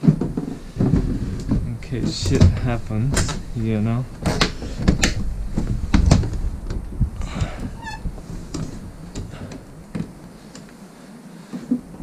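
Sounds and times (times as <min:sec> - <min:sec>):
window squeak: 0:07.4 - 0:09.7.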